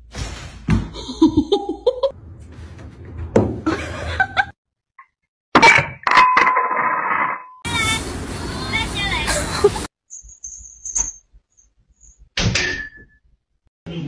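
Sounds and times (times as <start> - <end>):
person laughing: 1.0 - 2.1, 3.6 - 4.6, 9.3 - 9.9.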